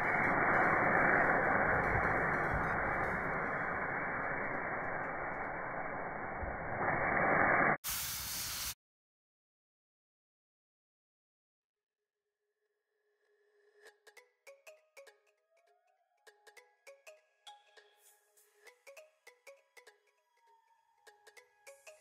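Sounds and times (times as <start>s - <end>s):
pot bubbling and sizzling: 0.0s - 8.8s.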